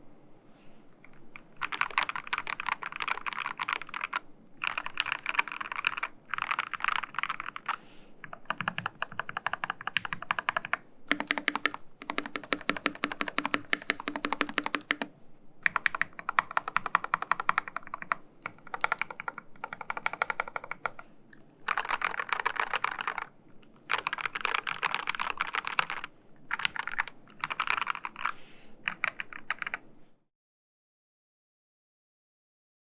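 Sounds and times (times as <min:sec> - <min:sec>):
mechanical keyboard typing: 0:01.1 - 0:21.0, 0:21.6 - 0:29.8.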